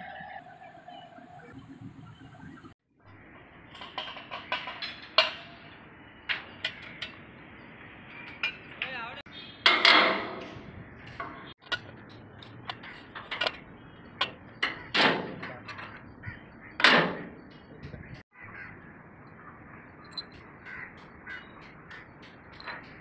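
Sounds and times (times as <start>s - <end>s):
steel clinking on steel: 3.7s - 7.2s, 20.1s - 23.0s.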